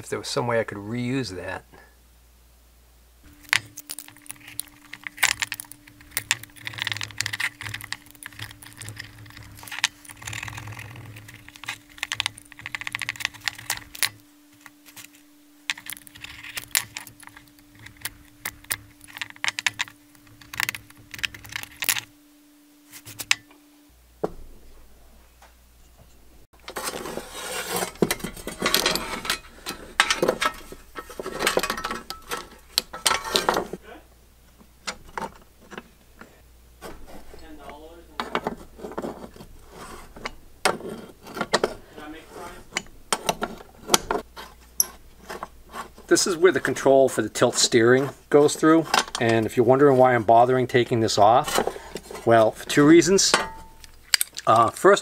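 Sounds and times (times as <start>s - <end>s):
clicks and scrapes on workbench: 26.6s - 33.8s.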